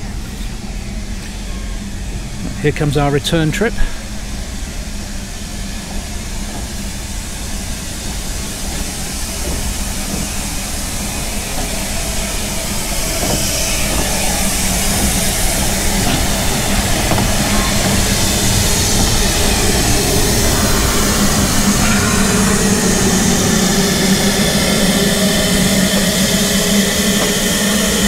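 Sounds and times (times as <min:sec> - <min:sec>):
hissing steam: 0:00.0 - 0:28.0
steam locomotive running: 0:00.0 - 0:28.0.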